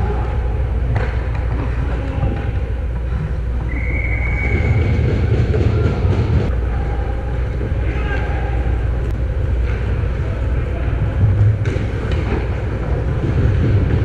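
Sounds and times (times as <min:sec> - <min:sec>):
distant players' voices: 0:00.0 - 0:14.0
low rumble of rink noise: 0:00.0 - 0:14.0
skates and sticks on ice: 0:04.4 - 0:06.5, 0:11.2 - 0:14.0.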